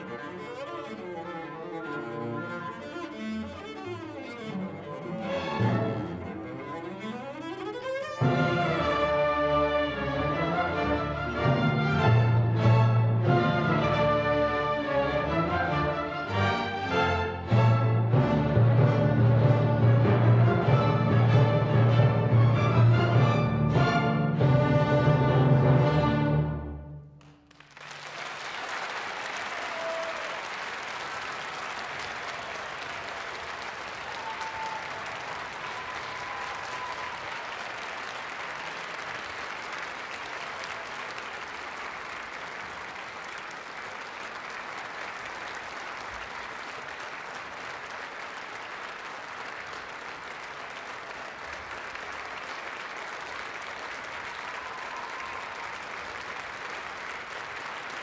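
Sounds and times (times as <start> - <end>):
audience applause: 0.0 - 1.8, 27.2 - 58.0.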